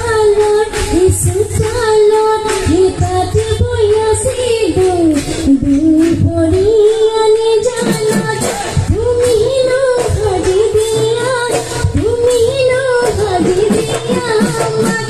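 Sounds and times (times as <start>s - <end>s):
drum beat: 0.0s - 15.0s
woman singing: 0.0s - 15.0s.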